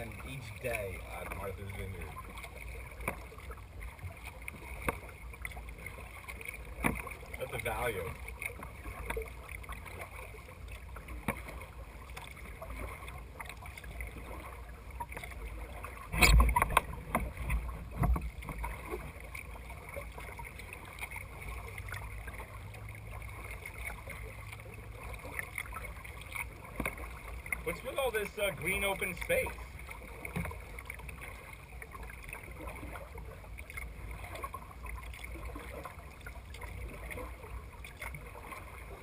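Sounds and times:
water splashing against a kayak: 0.0s - 39.0s
thump and splash: 2.4s - 7.5s, 11.0s - 19.4s, 29.1s - 39.0s.

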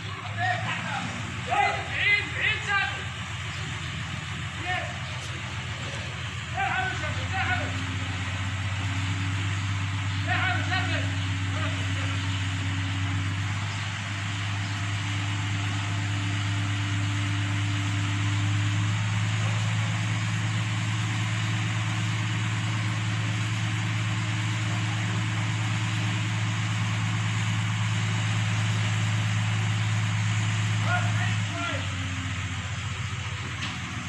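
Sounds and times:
crane engine humming: 0.0s - 34.0s.

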